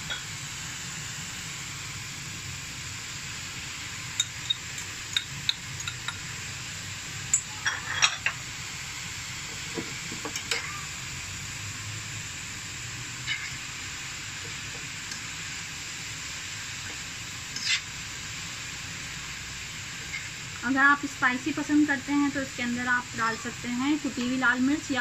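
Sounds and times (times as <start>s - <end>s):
vegetables sizzling in a pan: 0.0s - 25.0s
spoon scraping a pan: 7.4s - 8.4s, 13.2s - 13.6s, 17.5s - 18.0s, 20.0s - 20.4s.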